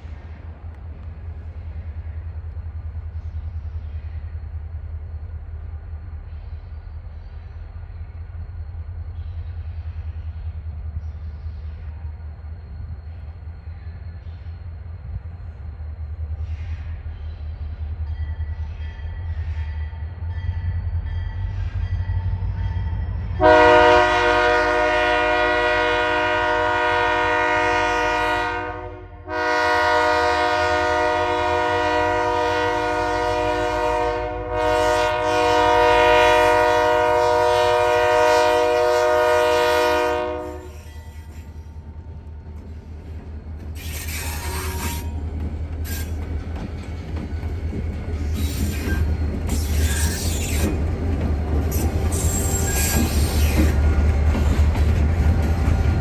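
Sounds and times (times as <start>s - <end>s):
locomotive air horn: 23.4s - 41.2s, 43.8s - 45.2s.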